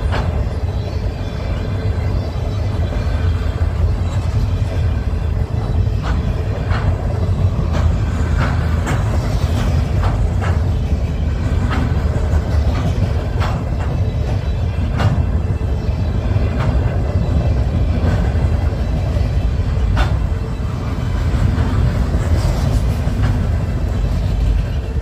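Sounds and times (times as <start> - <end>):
freight train rumbling: 0.0 - 25.0
sharp clicks and knocks: 5.9 - 15.5, 19.7 - 20.4.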